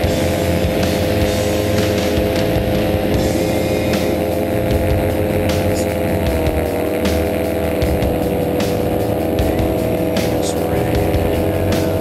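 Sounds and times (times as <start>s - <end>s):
paramotor engine drone: 0.0s - 12.0s.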